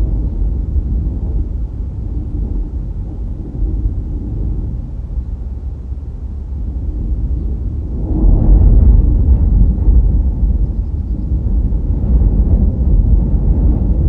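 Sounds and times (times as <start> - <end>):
car road and wind noise: 0.0 - 14.0.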